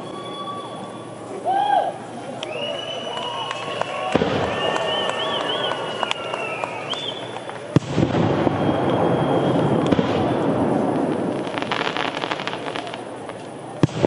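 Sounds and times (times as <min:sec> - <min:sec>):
fireworks crackling and popping: 0:03.4 - 0:14.0.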